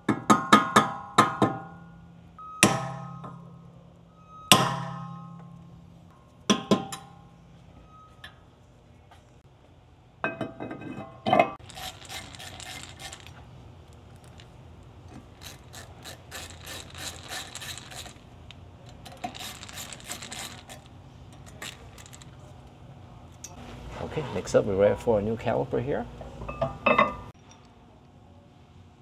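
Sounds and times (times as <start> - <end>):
metal clink and clank: 10.2 - 22.5, 26.4 - 27.7
hand ratchet clicking: 11.6 - 13.4, 15.1 - 22.3.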